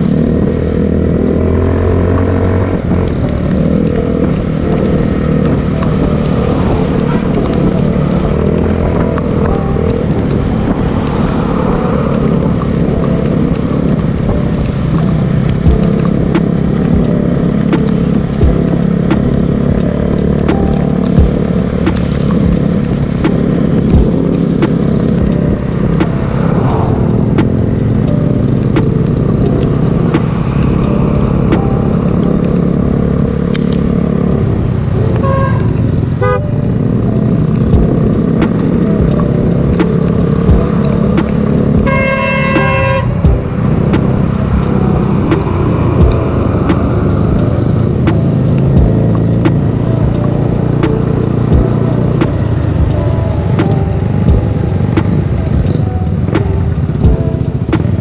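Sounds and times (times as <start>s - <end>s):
scooter engine running: 0.0s - 58.0s
vehicle horn: 6.9s - 7.6s, 35.2s - 36.6s, 41.9s - 43.3s.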